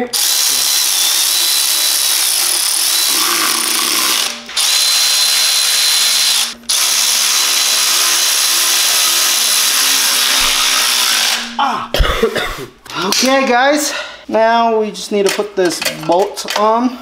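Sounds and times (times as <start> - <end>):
power tool motor running: 0.0 - 11.6.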